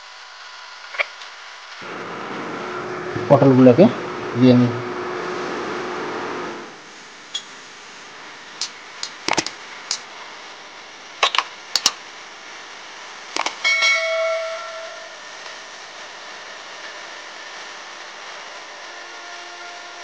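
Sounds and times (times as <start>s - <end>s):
metallic clang: 13.6s - 15.2s.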